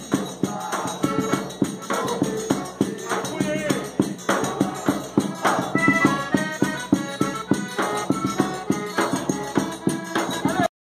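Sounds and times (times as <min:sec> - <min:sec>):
accordion melody: 0:00.0 - 0:10.7
tambourine jingles: 0:00.0 - 0:10.7.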